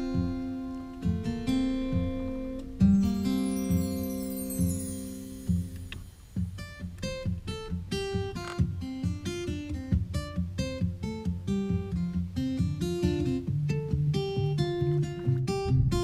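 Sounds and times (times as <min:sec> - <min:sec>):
acoustic guitar picking: 0:00.0 - 0:16.0
bass line: 0:13.4 - 0:16.0.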